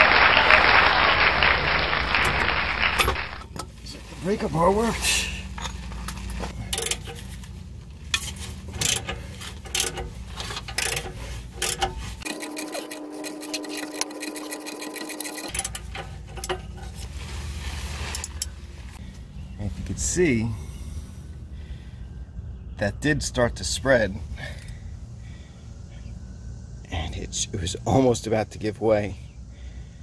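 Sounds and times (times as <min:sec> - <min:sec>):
ratchet clicking: 0:06.6 - 0:07.2, 0:08.1 - 0:16.9.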